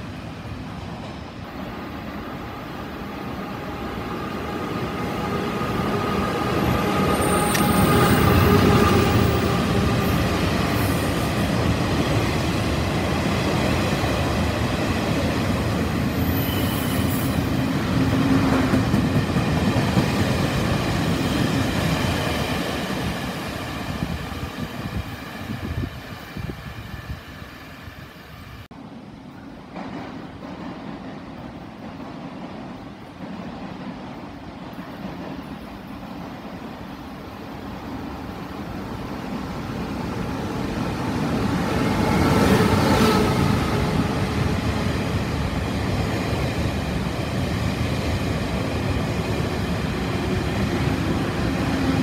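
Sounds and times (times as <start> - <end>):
train wheels rumbling: 38.0 - 52.0.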